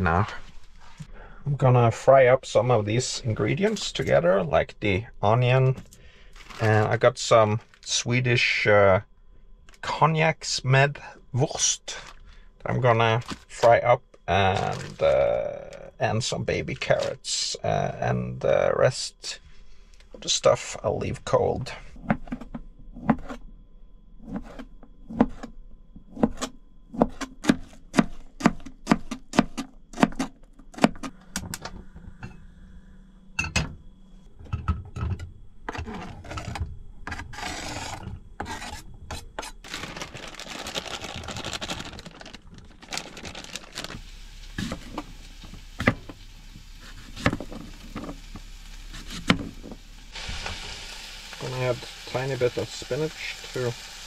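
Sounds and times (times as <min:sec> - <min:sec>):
utensil knocking and scraping: 0:34.4 - 0:39.6
food sizzling in a frying pan: 0:43.8 - 0:54.0.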